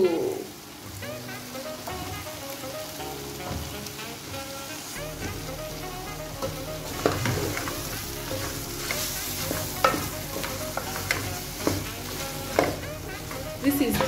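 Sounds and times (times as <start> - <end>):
chicken sizzling in sauce: 0.0 - 14.0
wooden spoon knocking on pot: 6.4 - 14.0.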